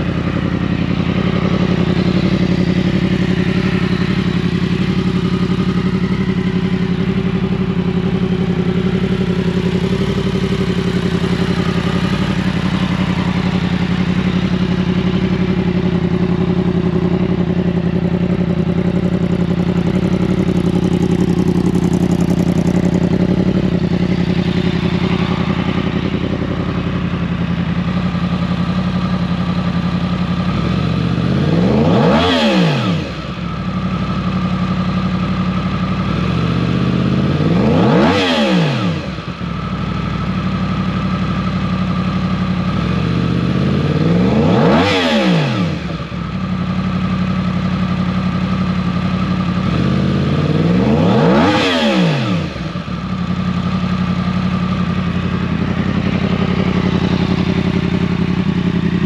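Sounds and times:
motorcycle engine idling: 0:00.0 - 0:59.0
sharp throttle rev: 0:50.4 - 0:52.8.

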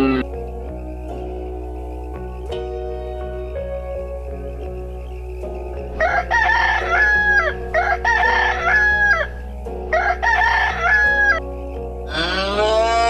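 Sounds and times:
soft background music: 0:00.0 - 0:13.0
rooster crowing: 0:06.0 - 0:11.4.

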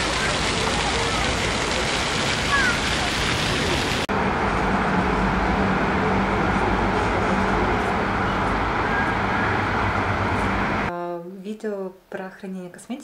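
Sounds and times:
passing cars: 0:04.1 - 0:10.9.

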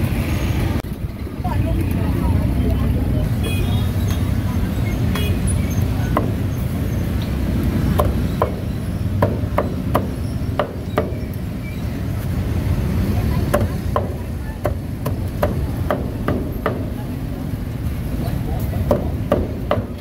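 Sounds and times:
cleaver chopping on a block: 0:07.9 - 0:08.6.

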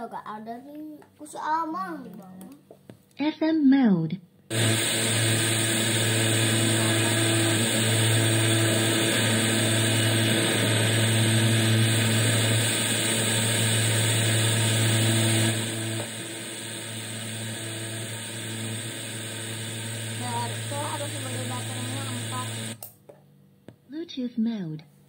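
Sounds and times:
low hum: 0:04.5 - 0:22.8.

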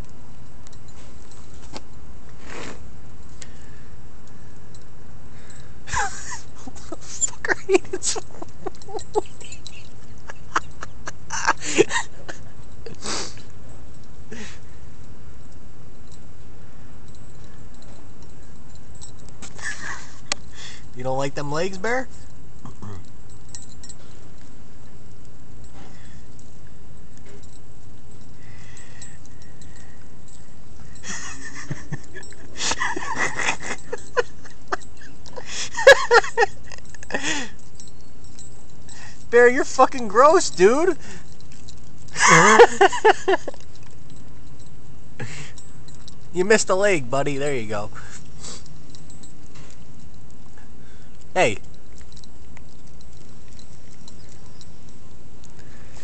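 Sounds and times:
steady background hiss: 0:00.0 - 0:56.0
dog crunching insect: 0:05.6 - 0:56.0
dog sniffing: 0:13.0 - 0:13.5, 0:48.0 - 0:56.0.

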